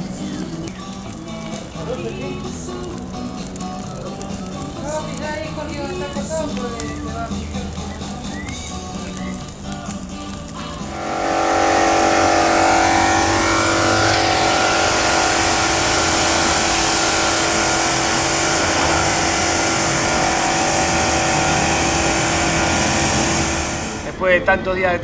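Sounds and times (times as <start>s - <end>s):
water jet spraying concrete: 0.0s - 24.4s
pressure washer motor whine: 10.8s - 24.2s.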